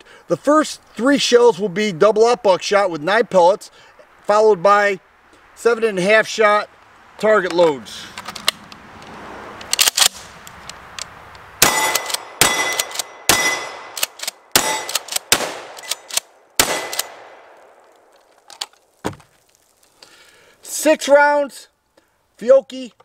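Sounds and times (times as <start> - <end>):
sharp clicks: 9.6 - 13.1, 13.9 - 18.8
shotgun shots: 11.6 - 17.7.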